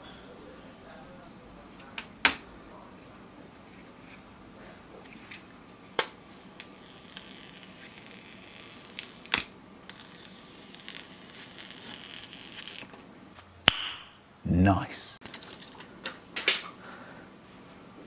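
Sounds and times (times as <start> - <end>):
plastic film crinkling: 9.9 - 12.9.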